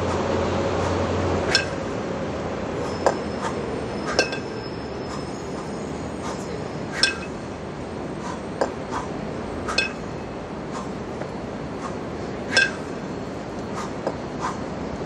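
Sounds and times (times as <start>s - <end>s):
steady background hiss: 0.0s - 15.0s
kettlebells clinking: 1.4s - 1.8s, 4.1s - 4.8s, 6.4s - 7.4s, 9.7s - 10.2s, 12.5s - 13.1s.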